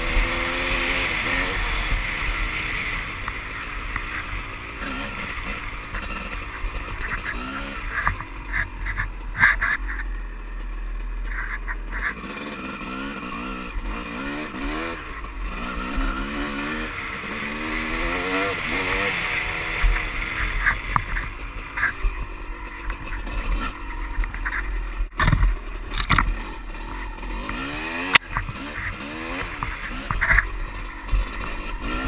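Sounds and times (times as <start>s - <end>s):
dirt bike engine revving: 0.0s - 32.0s
sharp clacks and knocks: 5.2s - 10.1s, 27.4s - 31.8s.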